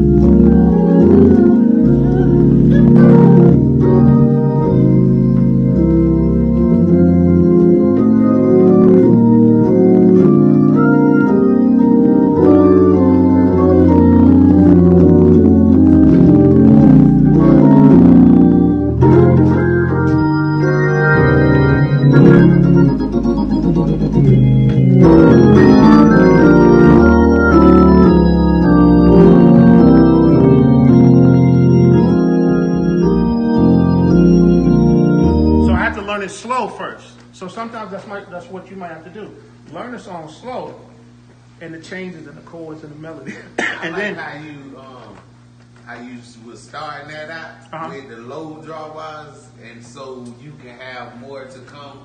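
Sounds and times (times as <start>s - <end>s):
organ playing chords: 0.0s - 40.0s.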